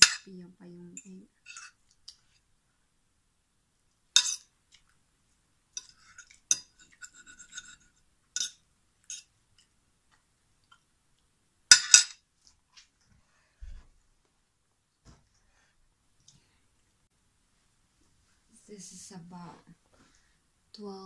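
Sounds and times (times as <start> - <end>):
fork clinking on a plate: 4.2 - 4.5, 5.8 - 9.3, 11.7 - 12.2.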